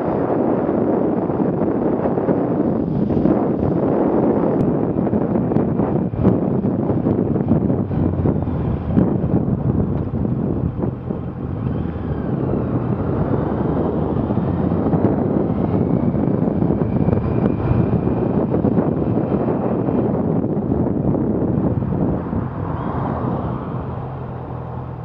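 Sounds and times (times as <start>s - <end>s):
motorcycle engine cruising: 0.0s - 25.0s
wind buffeting microphone: 0.0s - 25.0s.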